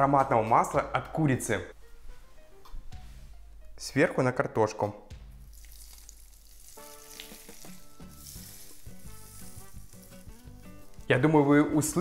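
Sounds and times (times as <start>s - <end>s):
hot oil sizzling on vegetables: 5.4s - 11.5s.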